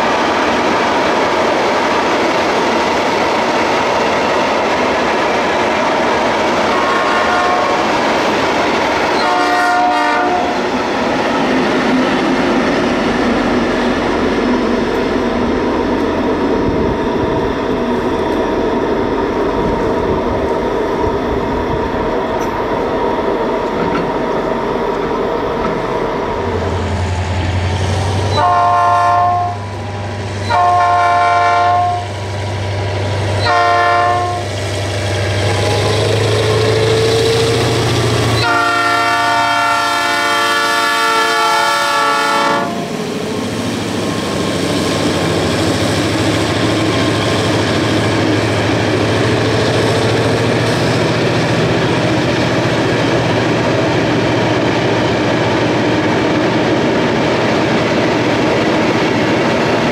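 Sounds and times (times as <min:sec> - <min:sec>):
locomotive air horn blasts: 0:06.7 - 0:07.9, 0:09.2 - 0:10.6, 0:28.3 - 0:29.8, 0:30.5 - 0:32.1, 0:33.4 - 0:34.5, 0:38.4 - 0:42.8
train wheels clattering on rails: 0:23.5 - 0:26.2, 0:42.8 - 0:59.9
diesel engine drone: 0:34.4 - 0:38.8.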